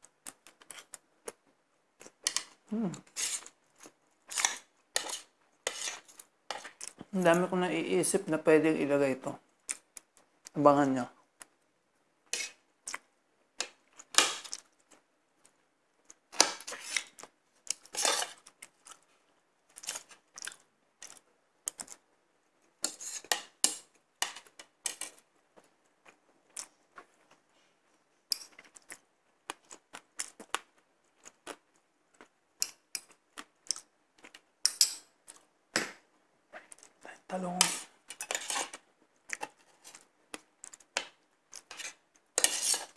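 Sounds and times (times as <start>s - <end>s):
chewing: 17.0s - 19.1s, 28.4s - 34.4s.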